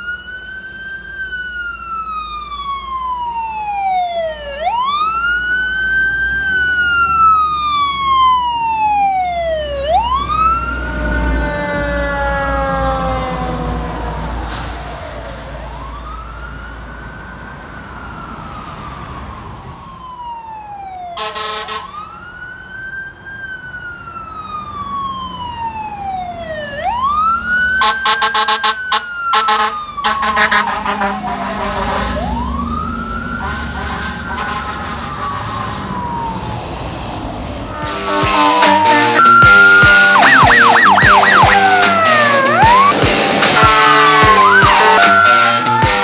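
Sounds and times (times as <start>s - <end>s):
fire engine siren wailing: 0.0s - 46.0s
truck engine rumble: 0.0s - 46.0s
horn blast: 21.2s - 22.0s, 27.8s - 32.6s, 33.3s - 36.2s, 37.7s - 46.0s.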